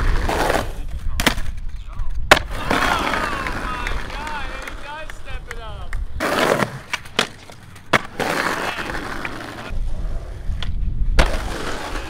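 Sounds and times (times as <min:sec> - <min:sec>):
skateboard wheels rolling: 0:00.0 - 0:12.0
skateboard clacking on curb: 0:02.3 - 0:09.8.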